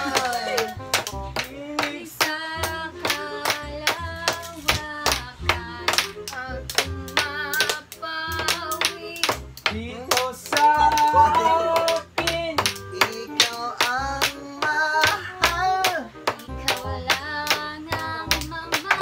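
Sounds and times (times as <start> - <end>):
low bass notes: 0.0 - 18.7
sharp ticking beat: 5.0 - 18.9
woodwind melody: 10.7 - 12.1.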